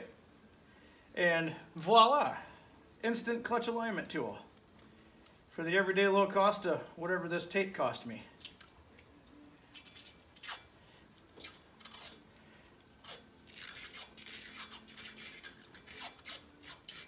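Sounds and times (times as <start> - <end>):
tape peeling off roll: 9.6 - 17.0.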